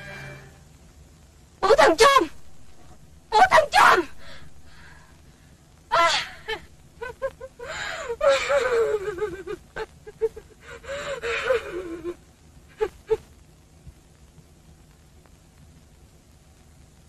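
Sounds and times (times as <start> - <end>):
person wailing cries: 5.9 - 13.2
person gasping: 7.6 - 8.2, 10.6 - 11.6.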